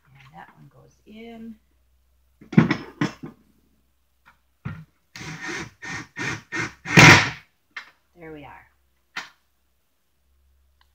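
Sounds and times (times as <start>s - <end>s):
cordless drill bursts: 5.2s - 7.4s.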